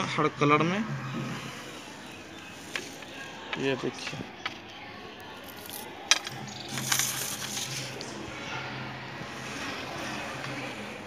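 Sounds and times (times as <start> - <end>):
rustling handling noise: 5.4 - 8.1.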